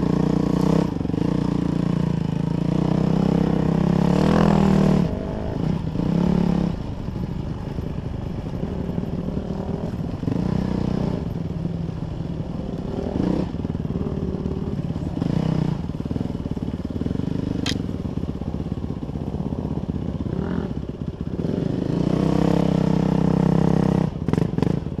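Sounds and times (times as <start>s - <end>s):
dirt bike engine revving: 0.0s - 18.0s
sharp click: 17.6s - 17.9s.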